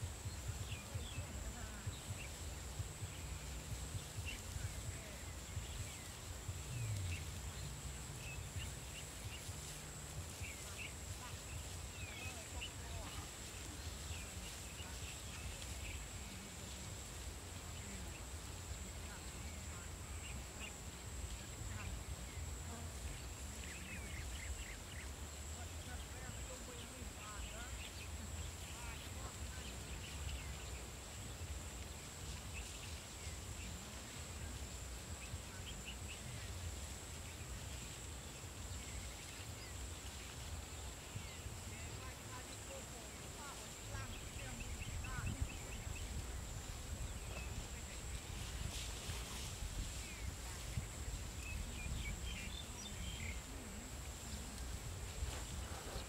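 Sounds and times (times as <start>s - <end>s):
low rumble: 0.0s - 26.3s
wind rumble on microphone: 0.0s - 56.0s.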